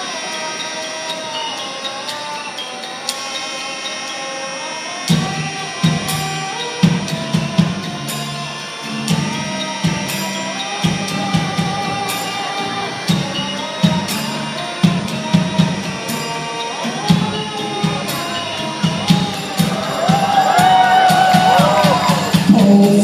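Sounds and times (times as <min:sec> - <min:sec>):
sliding-pitch otamatone melody: 0:00.0 - 0:23.0
drum-kit beat: 0:05.1 - 0:23.0.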